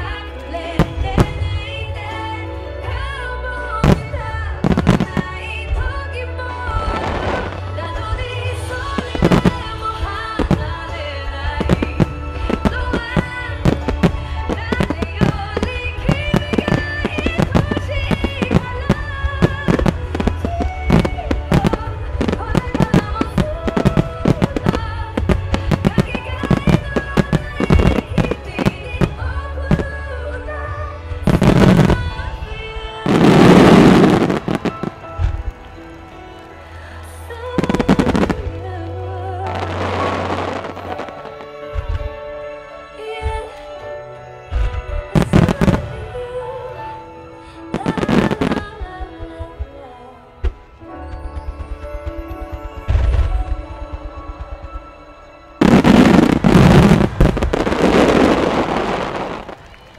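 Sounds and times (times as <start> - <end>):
fireworks bursting: 0.0 - 2.4, 3.8 - 43.8, 44.4 - 46.3, 47.7 - 49.7, 50.4 - 59.9
music with held notes: 0.0 - 59.9.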